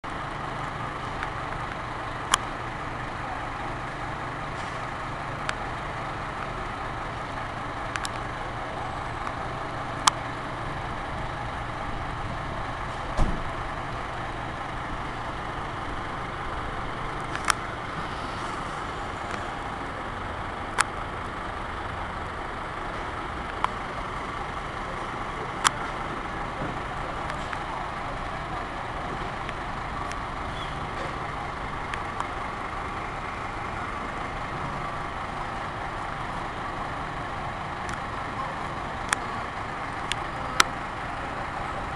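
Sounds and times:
diesel engine running: 0.0 - 41.9
dull thump: 13.2 - 13.5.

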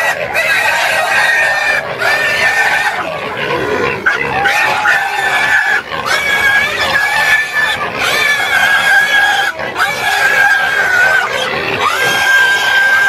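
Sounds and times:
pig squealing: 0.0 - 13.0.

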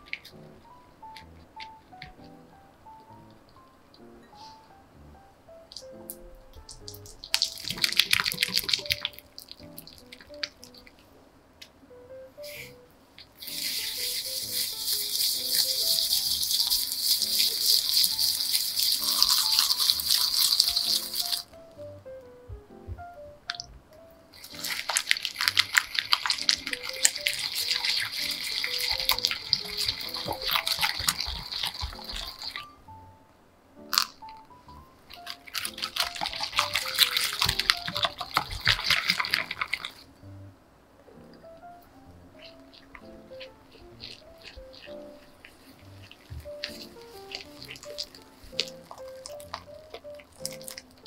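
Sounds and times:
whisk beating in glass bowl: 13.4 - 21.5, 24.4 - 32.6, 35.6 - 40.0.

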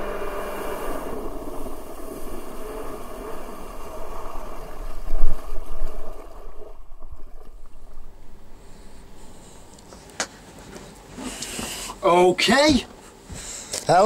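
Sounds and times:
wind buffeting camera: 0.0 - 9.7
water rushing: 0.0 - 9.9
jet drive whine: 0.0 - 10.2.

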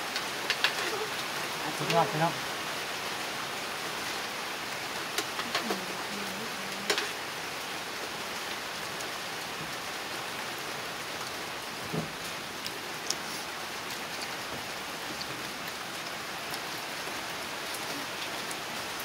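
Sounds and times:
light rain falling: 0.0 - 19.0.

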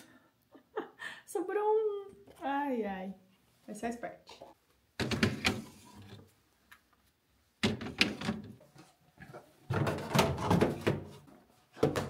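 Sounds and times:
containers clattering in refrigerator: 9.7 - 11.2.

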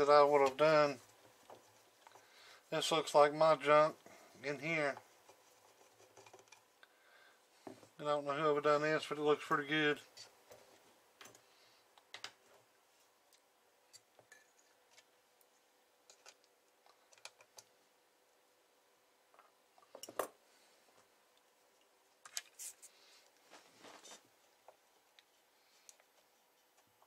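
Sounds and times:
hands handling tools and parts: 3.9 - 6.8.

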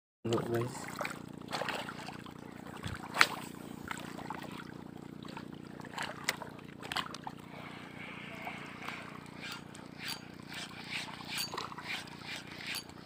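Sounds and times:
boat engine humming: 0.2 - 13.0.

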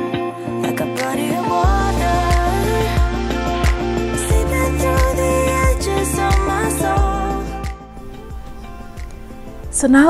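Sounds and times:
background music with steady beat: 0.0 - 10.0.

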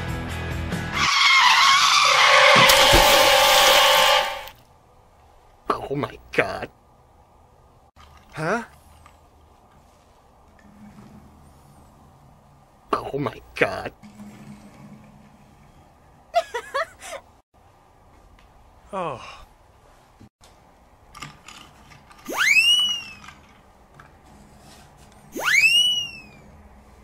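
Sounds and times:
rising whistle swoops: 22.3 - 23.2, 25.3 - 26.4
falling whistle glide: 22.3 - 23.3, 25.3 - 26.5.

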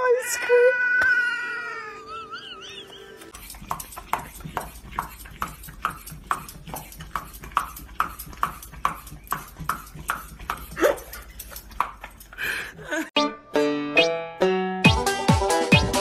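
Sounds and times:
dog licking: 3.3 - 12.4.

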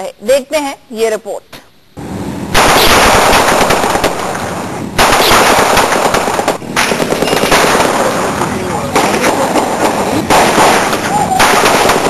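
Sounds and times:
rapid automatic gunfire: 2.6 - 4.4, 5.0 - 12.0.

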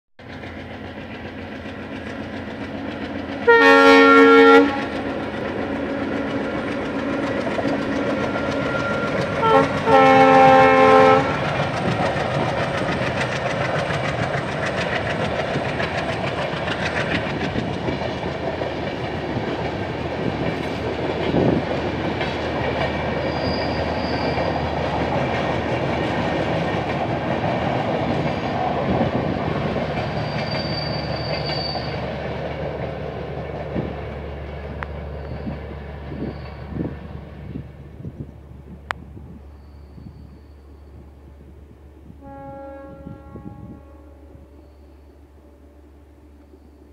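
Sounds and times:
passenger train rumbling past: 0.2 - 46.9
diesel locomotive horn blasts: 3.4 - 6.7, 8.0 - 11.9, 42.0 - 46.6.

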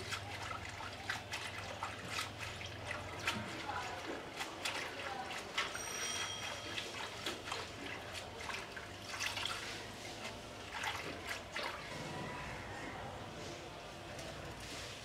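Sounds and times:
water dripping and trickling: 0.0 - 11.9
water sloshing and splashing: 0.0 - 15.0.

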